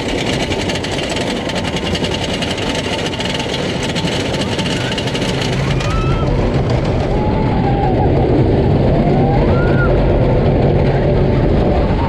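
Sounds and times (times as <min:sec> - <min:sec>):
roller coaster wheels rumbling: 0:00.0 - 0:12.0
wind noise on microphone: 0:05.4 - 0:12.0.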